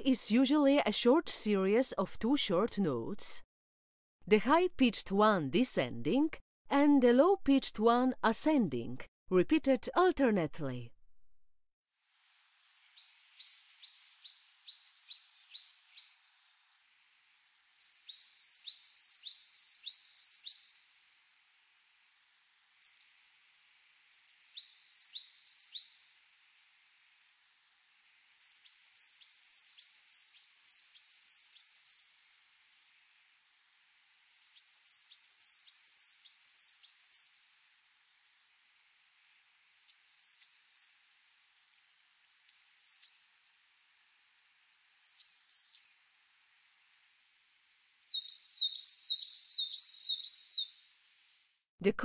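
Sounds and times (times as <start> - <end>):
coal tit singing: 17.8 - 20.8, 24.3 - 26.0, 28.4 - 32.2, 34.3 - 37.5, 42.3 - 43.4, 45.0 - 46.1, 48.1 - 50.7.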